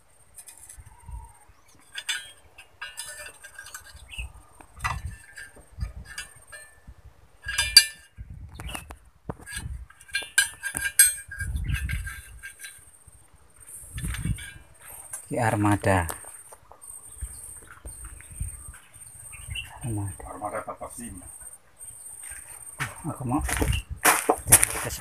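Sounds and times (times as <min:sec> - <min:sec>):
metal rod clinking and scraping: 0:00.3 - 0:20.8.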